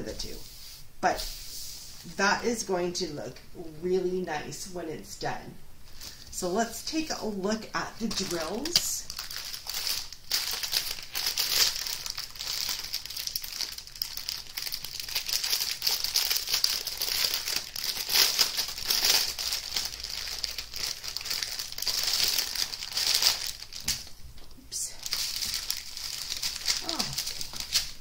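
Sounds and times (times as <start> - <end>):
plastic bag crinkling: 7.7 - 24.2, 24.9 - 28.0
bag crackling: 8.0 - 24.2, 24.9 - 28.0.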